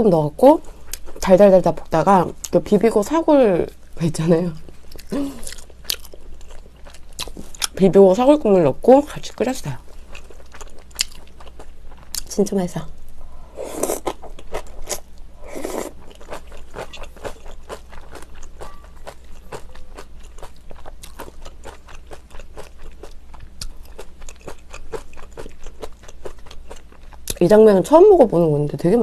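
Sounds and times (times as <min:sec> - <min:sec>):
close-miked crunchy chewing: 0:04.7 - 0:07.8, 0:09.4 - 0:12.4, 0:13.6 - 0:27.4.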